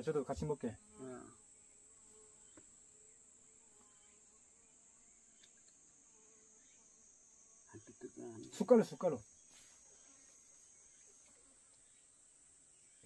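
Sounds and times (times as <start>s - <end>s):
high-pitched insect drone: 3.8s - 13.0s.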